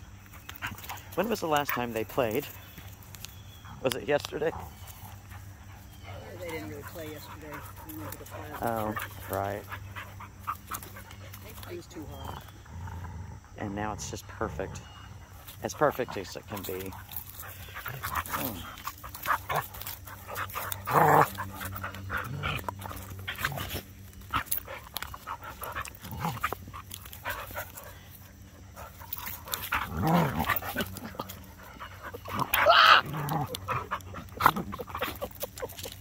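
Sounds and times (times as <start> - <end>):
dogs scuffling and growling: 0.0 - 36.0
dogs vocal bursts: 16.8 - 36.0.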